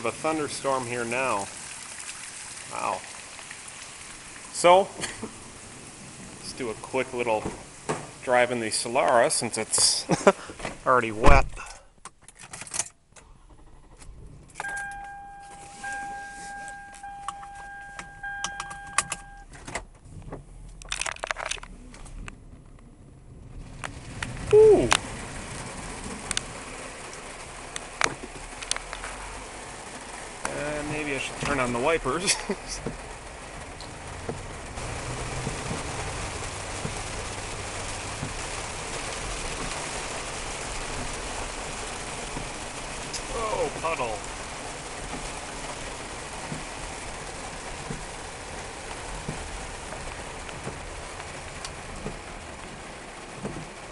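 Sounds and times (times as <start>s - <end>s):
heavy rain on car roof: 0.0s - 53.9s
car keys jangling in ignition: 11.5s - 20.0s, 20.8s - 22.2s
dashboard warning chime: 14.6s - 19.5s
low rumble: 21.6s - 27.7s.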